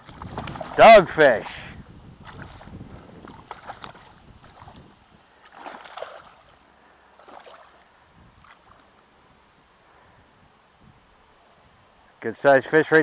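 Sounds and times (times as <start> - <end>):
fish splashing in water: 0.0 - 1.6, 2.2 - 6.6, 7.2 - 8.8.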